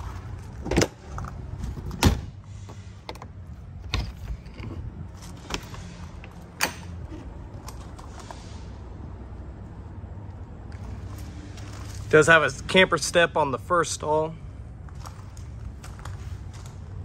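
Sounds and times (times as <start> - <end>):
metal door latch clicks and clunks: 0.6 - 1.0, 1.8 - 2.4, 3.0 - 7.3.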